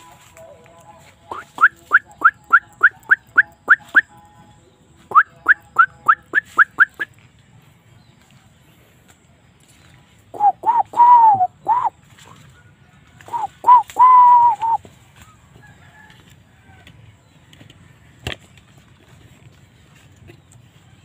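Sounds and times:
fowl crowing: 0:10.4 - 0:17.0.

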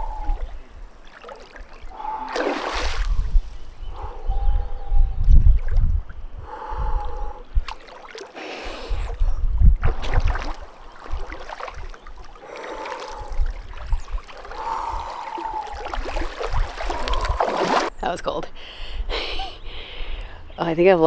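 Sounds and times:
wind on microphone: 0:00.0 - 0:01.0, 0:01.6 - 0:07.8, 0:08.6 - 0:20.8
water splashing from swimming: 0:01.0 - 0:03.2, 0:07.6 - 0:09.1, 0:09.8 - 0:17.9.

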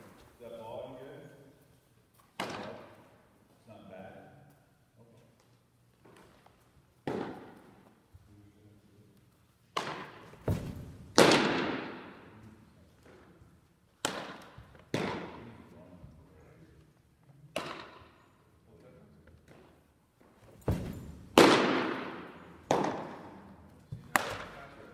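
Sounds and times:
baseballs smacking into mitts: 0:02.2 - 0:03.1, 0:06.0 - 0:08.0, 0:09.7 - 0:15.6, 0:17.5 - 0:18.2, 0:19.3 - 0:24.8.

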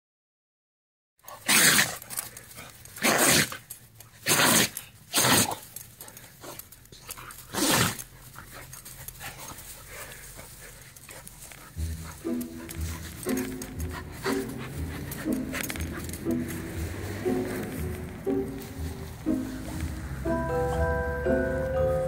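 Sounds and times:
dog sneezing: 0:01.4 - 0:02.0, 0:04.2 - 0:05.6, 0:07.5 - 0:08.0.

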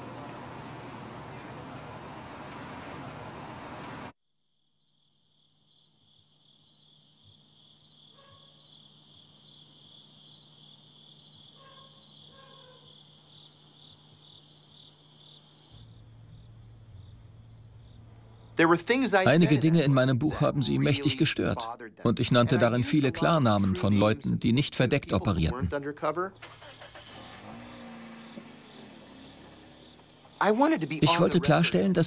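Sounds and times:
crickets chirping: 0:00.0 - 0:21.6, 0:26.3 - 0:32.0
low steady hum: 0:15.8 - 0:26.4.

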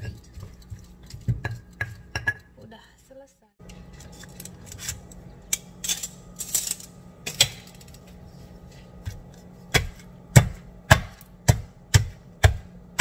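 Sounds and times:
stone pestle pounding: 0:00.0 - 0:02.6, 0:09.7 - 0:13.0
low steady hum: 0:00.0 - 0:13.0.

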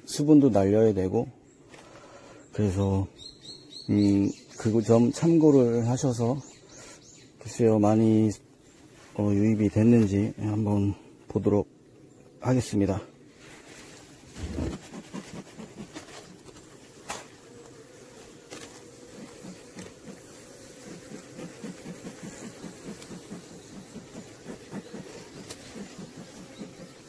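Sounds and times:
bees humming: 0:10.4 - 0:27.0
bee smoker bellows puffing: 0:13.3 - 0:27.0.

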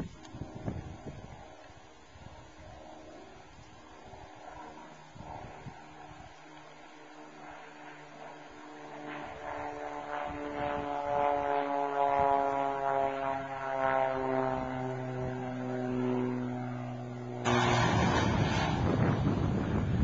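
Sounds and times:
wind gust on microphone: 0:00.0 - 0:01.5, 0:17.5 - 0:20.0
propeller plane flying past: 0:00.0 - 0:20.0.

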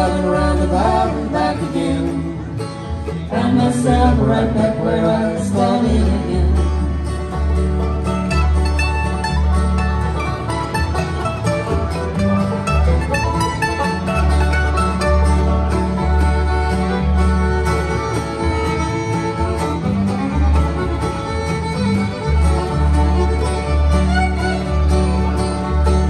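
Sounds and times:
acoustic guitar: 0:00.0 - 0:26.0
banjo: 0:00.0 - 0:26.0
fiddle lead: 0:00.0 - 0:26.0
mandolin: 0:00.0 - 0:26.0
upright bass: 0:00.0 - 0:26.0.

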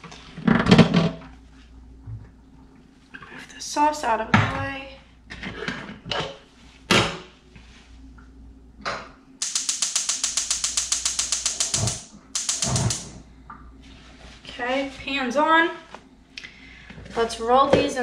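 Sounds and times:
rapid mechanical clicking: 0:09.4 - 0:13.2.

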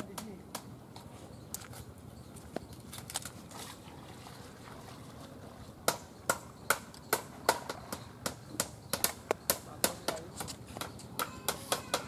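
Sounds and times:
low outdoor background: 0:00.0 - 0:12.0
hammer striking bamboo: 0:05.9 - 0:12.0.

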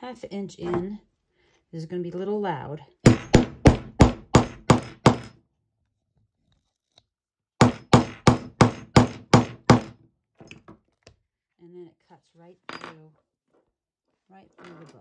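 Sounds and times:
hammer striking metal punch: 0:03.1 - 0:05.4.

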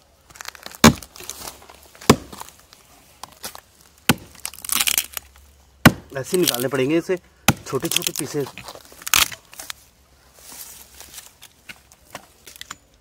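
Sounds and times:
wood splintering crackle: 0:00.2 - 0:09.8
hatchet chopping log: 0:00.7 - 0:01.1, 0:02.0 - 0:02.5, 0:04.1 - 0:05.1, 0:05.8 - 0:06.7, 0:07.5 - 0:08.2.

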